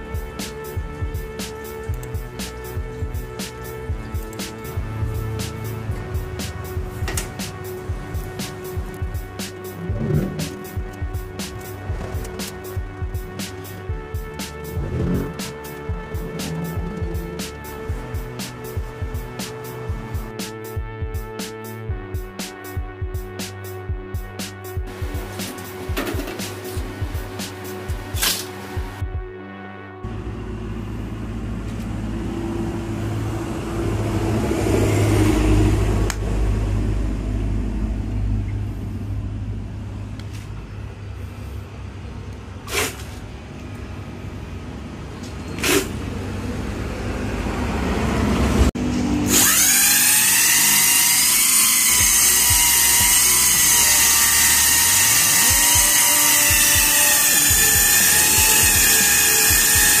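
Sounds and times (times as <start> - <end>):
low hum: 0.1 - 21.0, 30.0 - 42.2
electric motor high-pitched whine: 49.2 - 60.0.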